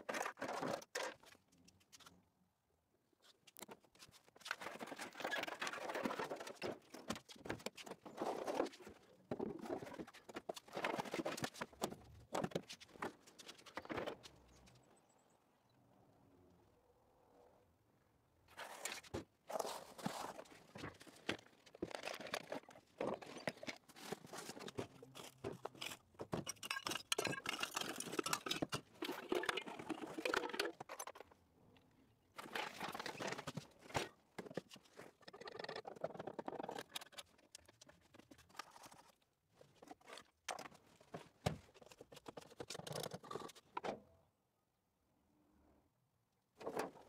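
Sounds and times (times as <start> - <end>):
cardboard crunching and rustling: 19.5 - 26.0.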